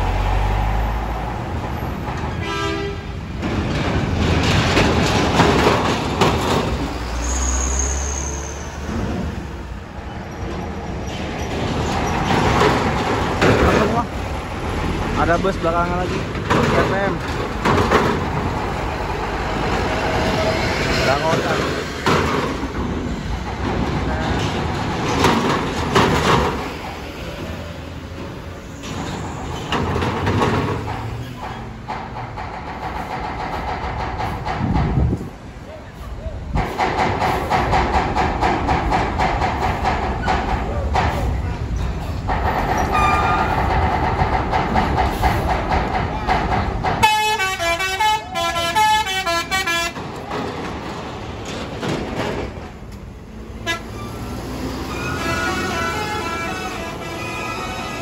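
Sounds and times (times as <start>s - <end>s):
tyres clanking on metal ramp: 1.5s - 8.0s, 8.8s - 54.2s
musical multi-tone horn: 2.4s - 3.1s, 47.0s - 50.0s, 53.6s - 54.0s, 54.9s - 58.0s.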